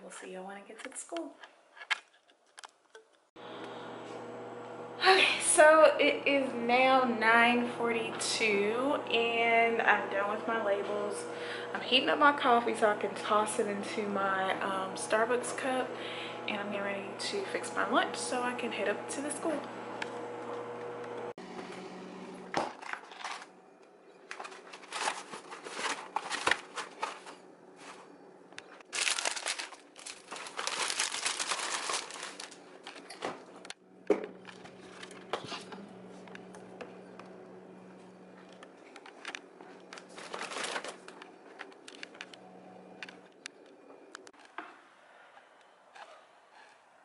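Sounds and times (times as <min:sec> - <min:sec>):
plastic packaging crinkling: 0:22.8 - 0:23.5, 0:24.1 - 0:33.6, 0:39.1 - 0:42.3.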